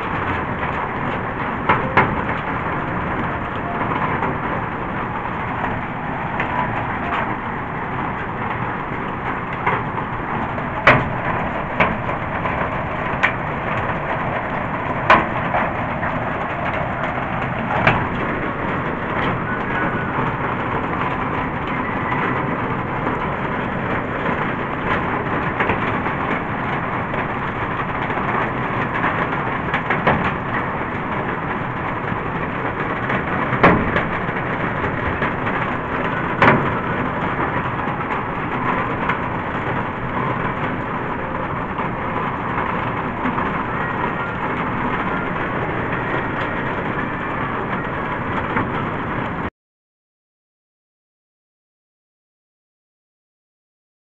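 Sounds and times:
hail hissing on a roof: 0.0s - 49.5s.

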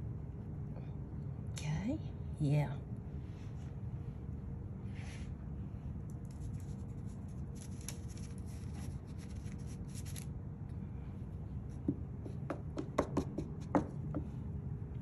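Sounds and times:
scratchy rubbing of dough: 6.3s - 10.2s.

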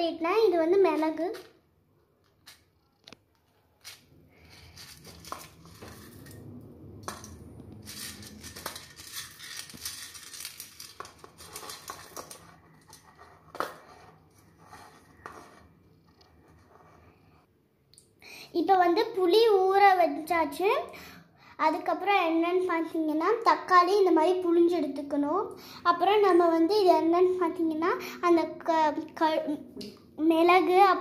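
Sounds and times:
spices clicking on metal plate: 7.9s - 13.7s.

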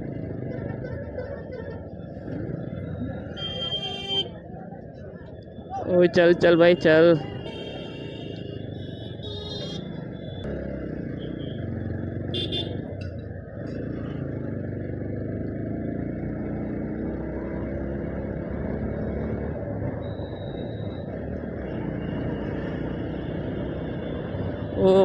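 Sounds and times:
other motorbikes and vehicles: 0.0s - 25.0s
road and wind noise: 0.0s - 25.0s
motorcycle engine running: 7.5s - 20.2s.

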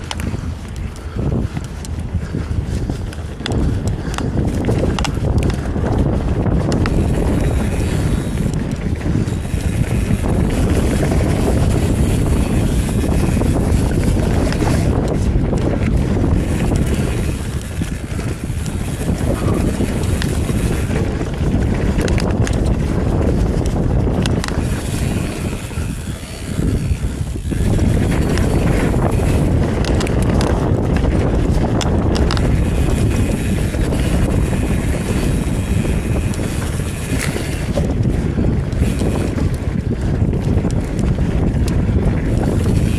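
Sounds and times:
bike tyres on dirt: 0.0s - 42.9s
wind rushing over microphone: 0.0s - 42.9s.

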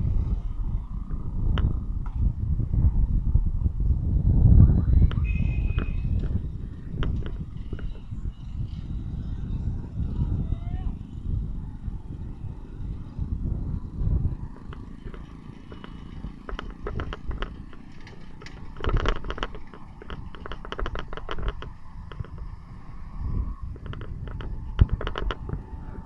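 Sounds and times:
rapid clicking and rattling: 6.2s - 8.1s, 14.4s - 22.9s, 23.6s - 25.8s
vehicle rumble from on board: 11.0s - 26.0s.

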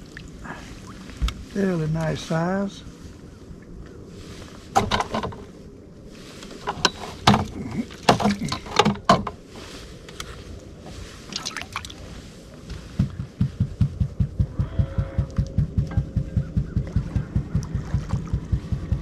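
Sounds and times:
water splashing: 0.0s - 2.6s, 11.2s - 12.4s, 16.8s - 19.0s
knocks and clatters in boat: 4.7s - 5.6s, 6.6s - 9.6s, 12.7s - 19.0s.

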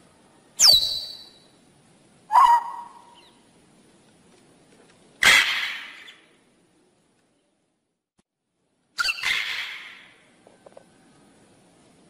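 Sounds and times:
macaw squawking: 2.3s - 3.3s, 9.0s - 10.2s.

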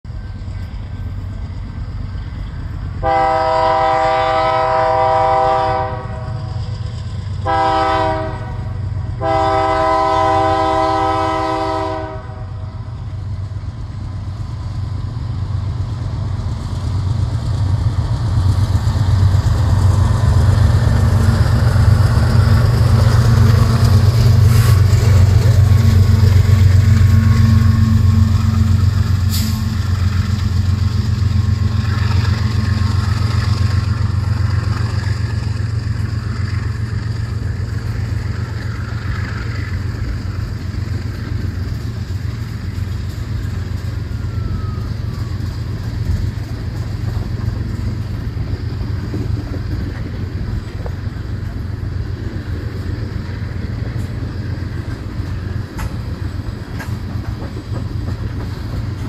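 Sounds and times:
locomotive air horn blasts: 3.0s - 6.7s, 7.4s - 12.8s, 29.2s - 29.8s.

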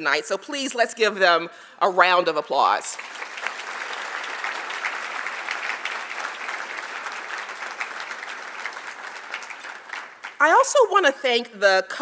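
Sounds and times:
audience applauding: 2.9s - 10.6s.

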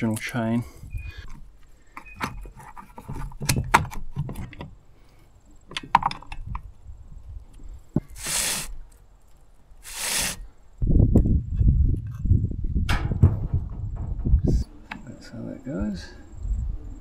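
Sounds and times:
short hisses: 8.1s - 8.8s, 9.8s - 10.5s.

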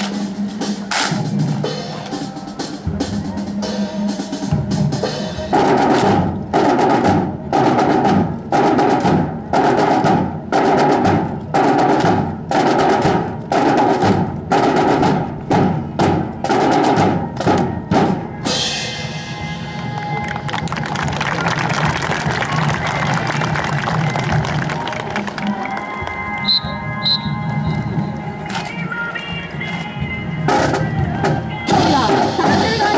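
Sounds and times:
marching drums playing cadence: 0.0s - 20.6s.

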